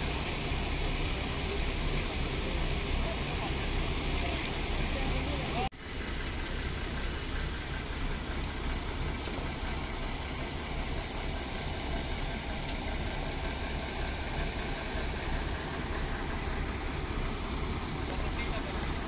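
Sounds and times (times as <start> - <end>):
diesel engines idling: 0.0 - 19.0.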